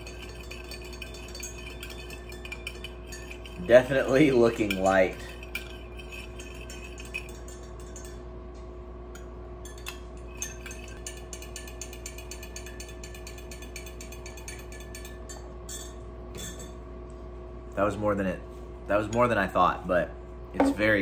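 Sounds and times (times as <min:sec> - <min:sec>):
spoon clinking against mug: 0:00.0 - 0:08.2, 0:09.2 - 0:16.8
steady hum: 0:00.0 - 0:21.0.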